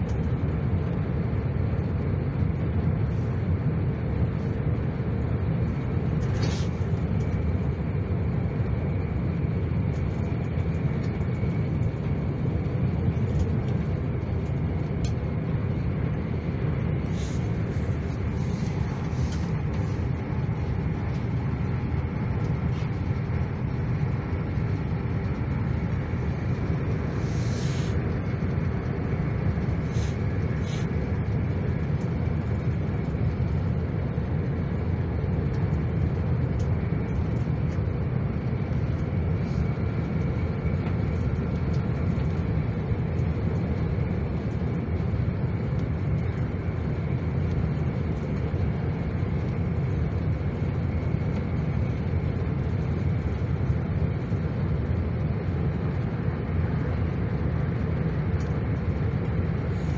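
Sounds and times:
train rumbling on track: 0.0 - 34.7.

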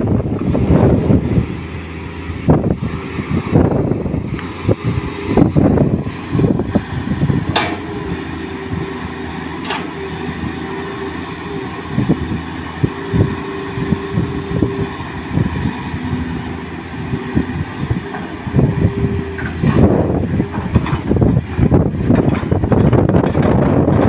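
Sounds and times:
excavator diesel engine running: 0.0 - 24.0
hydraulic whine: 0.0 - 24.0
clunks: 7.5 - 8.0, 9.6 - 10.0, 19.3 - 24.0.

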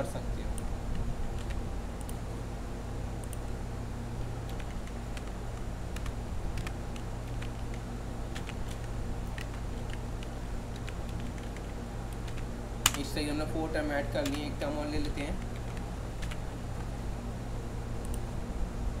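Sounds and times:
low hum: 0.0 - 19.0
keyboard and mouse clicks: 8.4 - 13.1, 14.2 - 14.5.

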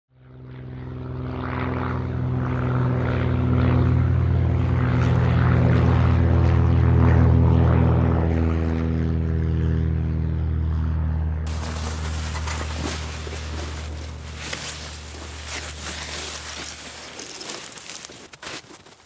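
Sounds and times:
propeller airplane droning: 0.2 - 18.4.

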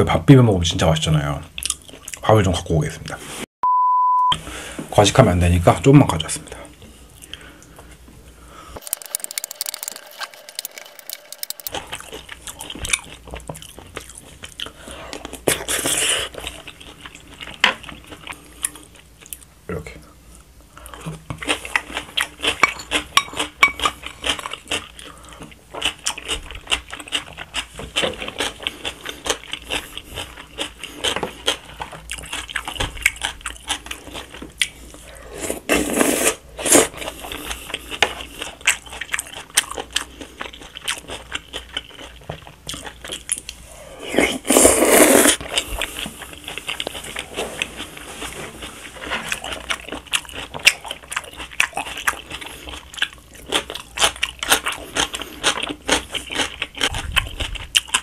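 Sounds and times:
chewing: 8.8 - 19.5, 20.8 - 58.0
loud slurps of noodles: 35.4 - 36.9, 44.0 - 45.4.

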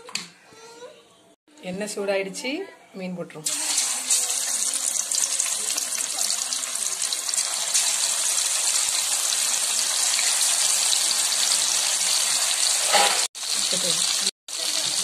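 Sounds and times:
fish sizzling in hot oil: 3.5 - 15.0.

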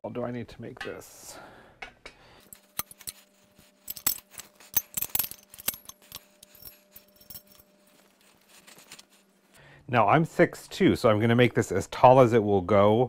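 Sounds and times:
faint steady hum: 0.1 - 13.0
metallic clicks and clinks: 2.5 - 7.7.

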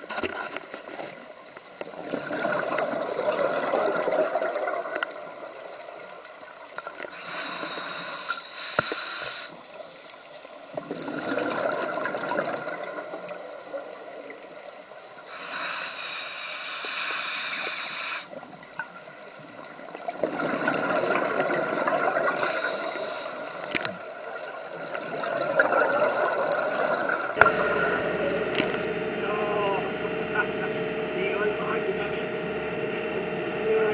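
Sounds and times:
regulator hissing inhalations: 7.1 - 9.6, 15.3 - 18.4, 22.4 - 23.6
bubbling exhalations: 10.8 - 12.9, 20.1 - 23.4.

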